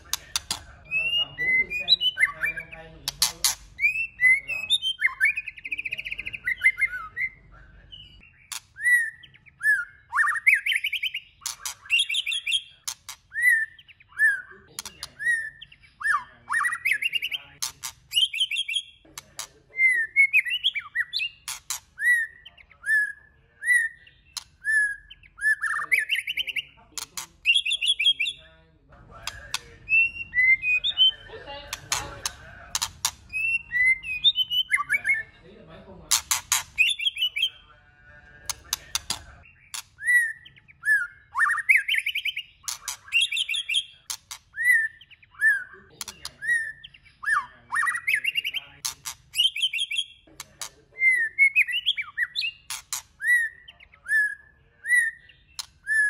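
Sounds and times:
sharp bird clicking notes: 0:00.0 - 0:00.7, 0:03.0 - 0:04.0, 0:10.7 - 0:13.2, 0:21.4 - 0:21.9, 0:29.2 - 0:29.7, 0:31.7 - 0:33.6, 0:36.1 - 0:37.2, 0:38.4 - 0:39.9
bird singing whistled phrases: 0:00.0 - 0:17.5, 0:18.1 - 0:19.0, 0:19.7 - 0:26.8, 0:27.4 - 0:28.4, 0:29.2 - 0:31.3, 0:32.7 - 0:35.3, 0:36.8 - 0:37.6, 0:39.0 - 0:50.2, 0:50.9 - 0:56.0.

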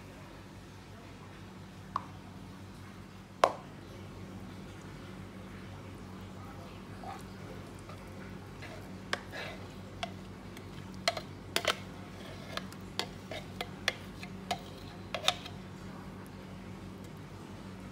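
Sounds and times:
spoon scraping plastic container: 0:08.6 - 0:15.6.

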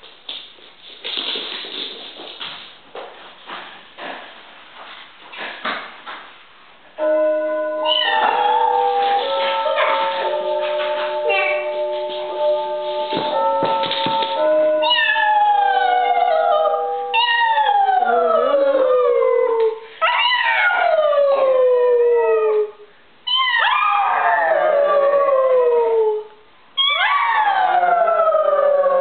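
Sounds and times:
dog howling: 0:07.9 - 0:08.7, 0:14.8 - 0:22.7, 0:23.3 - 0:26.2, 0:26.8 - 0:29.0
woman howling: 0:14.8 - 0:19.8.

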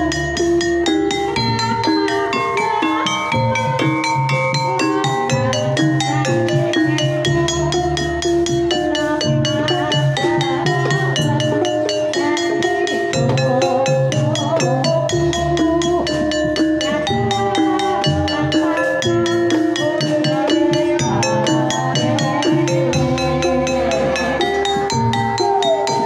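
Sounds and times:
hand drums beating: 0:00.0 - 0:26.0
struck gamelan notes ringing: 0:00.0 - 0:26.0
woman singing: 0:01.1 - 0:26.0.

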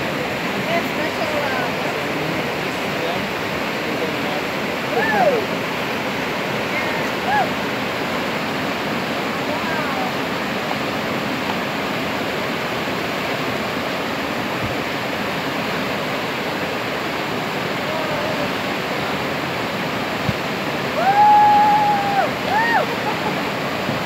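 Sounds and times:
whitewater rushing: 0:00.0 - 0:24.0
person shouting: 0:04.9 - 0:05.5, 0:21.0 - 0:23.0.

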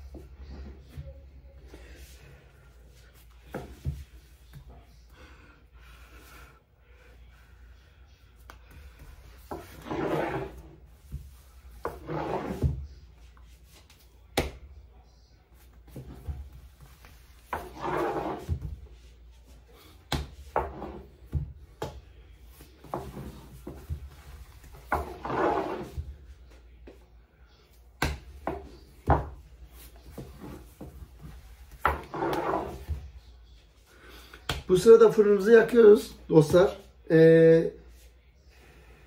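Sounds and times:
rolling and rubbing dough: 0:00.0 - 0:37.1.

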